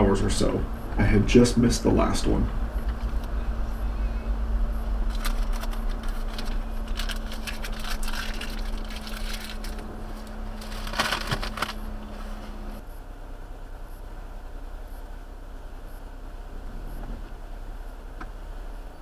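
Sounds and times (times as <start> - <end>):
faint hum: 0.0 - 19.0
vehicle rumble: 0.0 - 19.0
crackling or rustling: 4.7 - 12.8.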